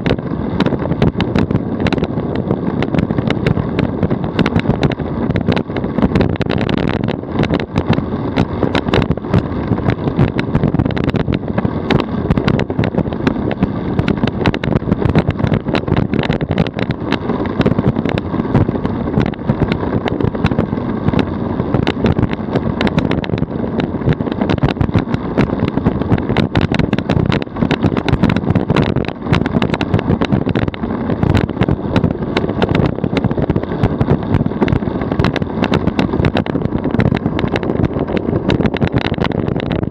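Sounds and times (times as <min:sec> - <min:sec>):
road rumble: 0:00.0 - 0:39.9
small clicks and rattles: 0:00.0 - 0:39.9.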